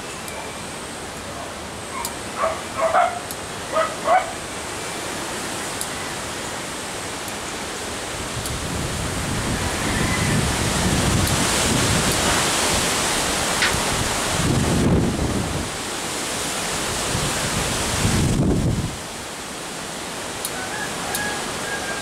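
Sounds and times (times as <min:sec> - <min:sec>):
dog barking: 0:02.0 - 0:04.4
wind on microphone: 0:08.2 - 0:15.8, 0:16.8 - 0:19.1.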